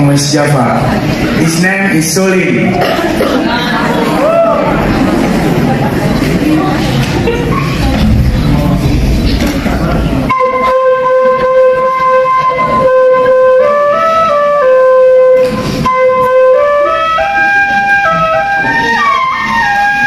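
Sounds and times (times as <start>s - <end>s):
bamboo flute melody: 10.3s - 20.0s.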